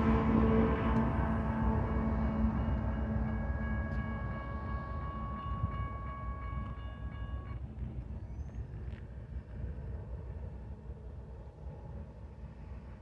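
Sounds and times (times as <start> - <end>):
crossing warning bell ringing: 0.0 - 7.9
freight train rumbling: 0.0 - 13.0.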